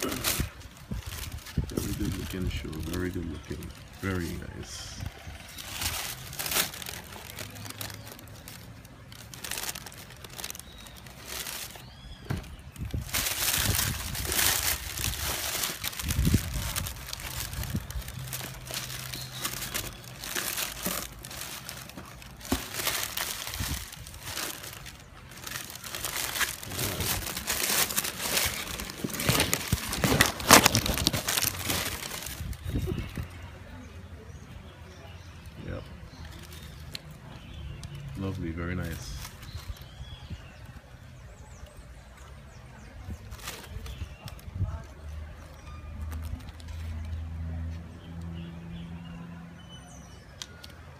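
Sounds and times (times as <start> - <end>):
tissue paper crumpling: 0.0 - 4.4, 5.1 - 12.0, 12.8 - 32.8.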